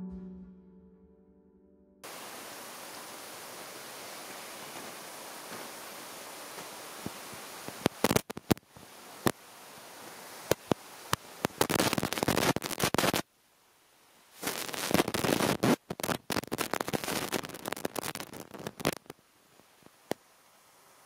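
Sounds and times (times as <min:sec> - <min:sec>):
crackling and scraping: 0:11.4 - 0:13.2, 0:14.4 - 0:19.2.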